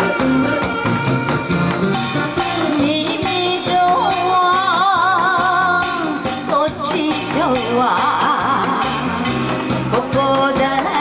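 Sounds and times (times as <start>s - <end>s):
backing track with drums: 0.0s - 11.0s
woman singing with vibrato: 2.2s - 11.0s.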